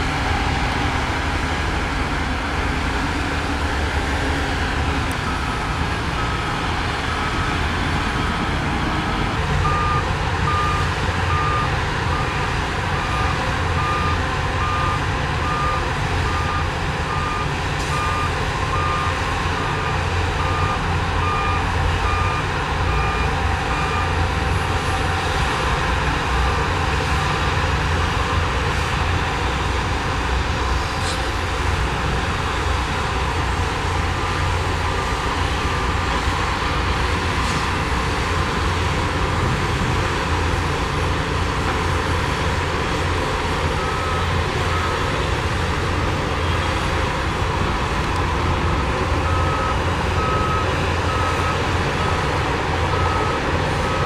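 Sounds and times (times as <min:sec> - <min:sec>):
diesel machines rumbling: 0:00.0 - 0:54.0
reversing alarm beeping: 0:09.6 - 0:24.9, 0:43.6 - 0:45.2, 0:49.2 - 0:54.0.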